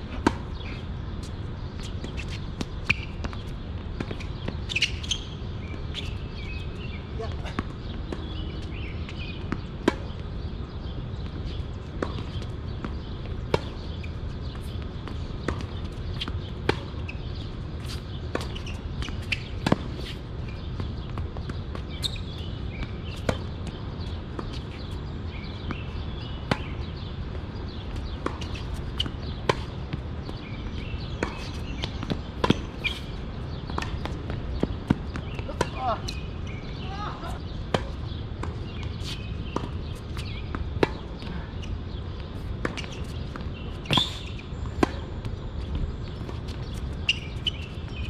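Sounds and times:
tennis balls struck by rackets: 6.8 - 10.5, 11.2 - 17.1, 17.8 - 41.3, 41.9 - 45.4.

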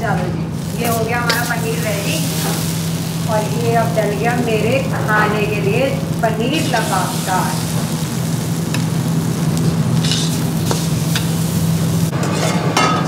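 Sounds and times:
food sizzling: 0.0 - 12.2
steady low hum: 0.0 - 12.2
metal ladle scraping a pan: 10.0 - 11.5.

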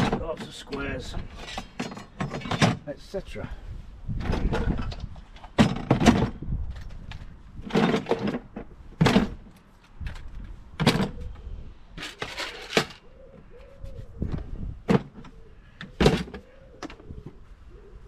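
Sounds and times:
tools knocking and clattering: 0.0 - 2.8, 4.2 - 9.5
tools rattling: 0.0 - 2.8, 4.3 - 9.4, 12.0 - 13.1.

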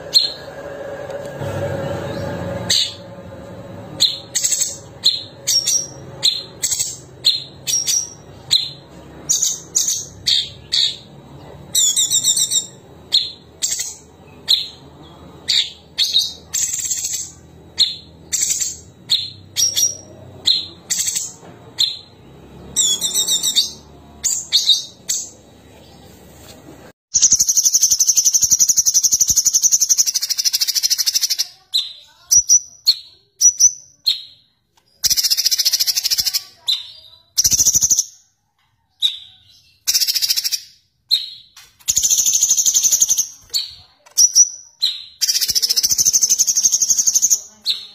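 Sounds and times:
bird singing high whistled notes: 0.1 - 0.5.

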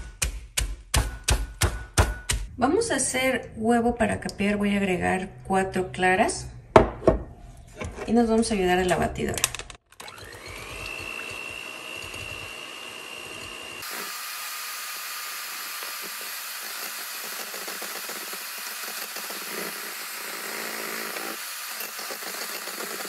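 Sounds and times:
electric hand mixer whine: 10.0 - 23.0.

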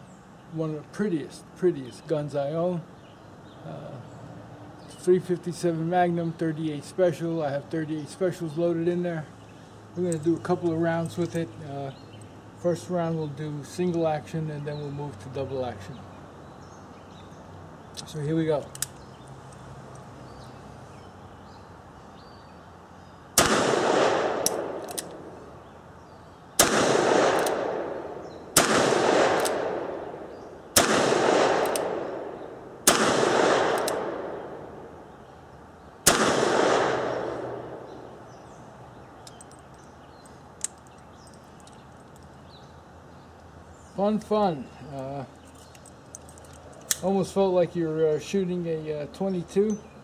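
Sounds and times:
revolver shots with echo: 26.6 - 34.8, 36.1 - 38.0
small click: 33.8 - 34.0.

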